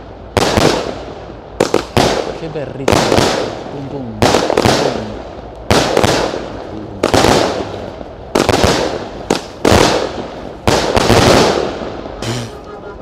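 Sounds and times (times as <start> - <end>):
firework bangs: 0.0 - 12.6.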